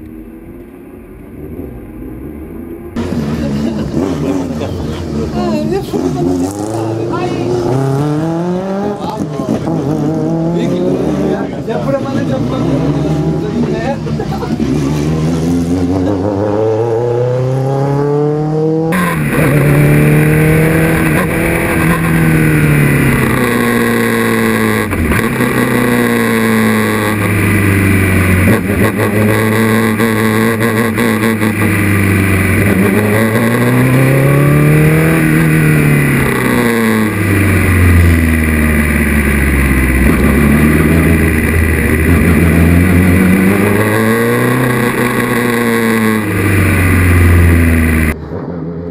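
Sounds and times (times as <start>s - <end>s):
race car engine revving: 0.0s - 48.9s.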